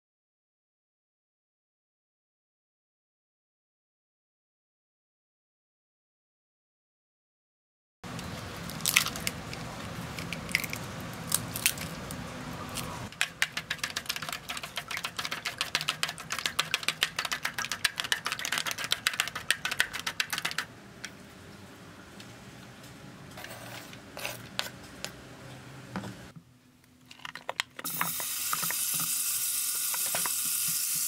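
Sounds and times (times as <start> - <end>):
scattered clicks and knocks: 13.1 - 20.7.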